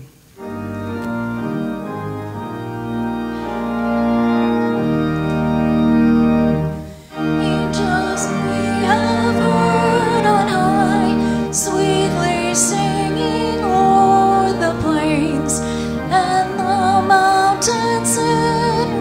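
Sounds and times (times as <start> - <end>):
church organ playing chords: 0.0 - 19.0
voices singing: 7.2 - 19.0.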